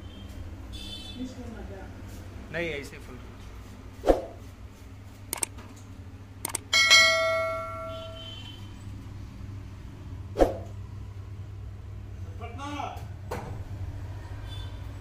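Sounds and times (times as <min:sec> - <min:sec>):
bright bell ding: 0:06.7 - 0:08.2.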